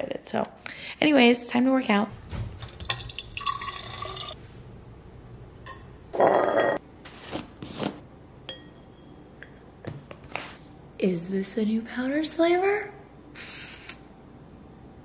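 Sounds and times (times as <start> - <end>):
water running into glass bottle: 2.8 - 4.4.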